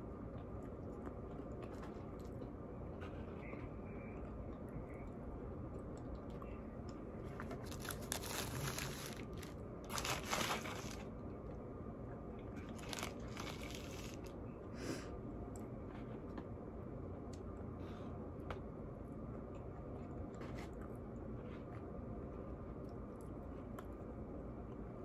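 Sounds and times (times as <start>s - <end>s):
quiet chewing: 0.0s - 11.3s, 19.2s - 24.9s
paper wrapper crinkling: 7.6s - 11.1s, 12.7s - 14.3s.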